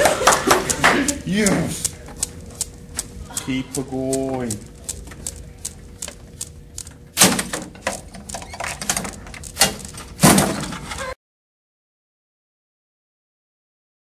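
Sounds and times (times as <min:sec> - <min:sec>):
chain-reaction machine clicks and knocks: 0:06.8 - 0:11.1.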